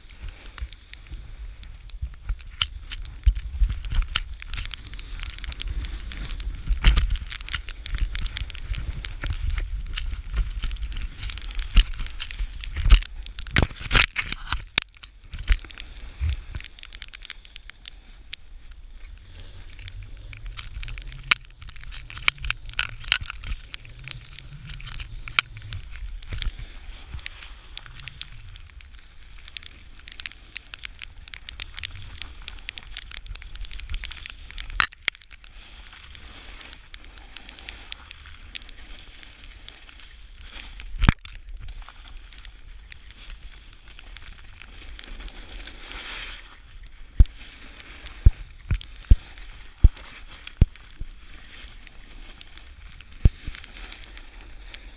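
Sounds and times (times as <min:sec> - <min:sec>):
snowboard scraping over snow: 0:15.6 - 0:31.2, 0:44.7 - 0:54.9.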